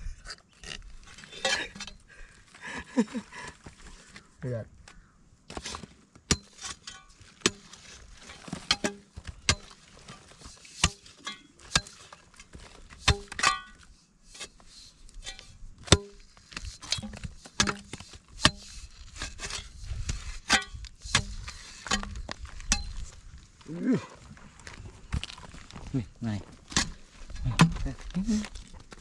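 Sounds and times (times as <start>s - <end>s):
metal blade chopping dry clay: 5.5s - 9.8s, 10.7s - 12.2s, 13.0s - 13.8s, 15.2s - 23.0s, 26.7s - 27.9s.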